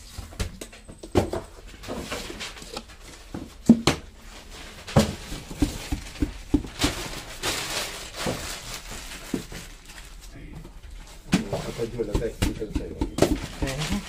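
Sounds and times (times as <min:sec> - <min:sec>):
knocks and taps on cardboard tubes: 0:04.9 - 0:07.1, 0:11.3 - 0:14.0.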